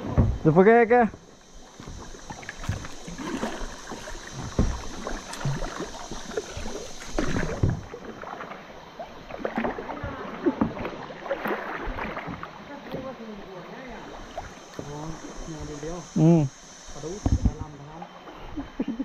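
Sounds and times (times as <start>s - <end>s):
paddle knocks against hull: 0.0s - 0.6s, 1.8s - 8.6s
steady high hiss: 0.0s - 9.5s, 11.1s - 19.0s
paddle splashes: 0.0s - 16.0s.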